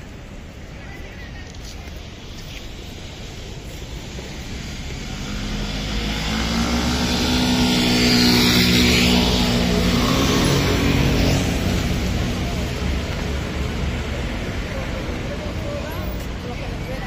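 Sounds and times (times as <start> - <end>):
city traffic hum: 0.0 - 17.0
vehicle passing by: 4.4 - 15.3.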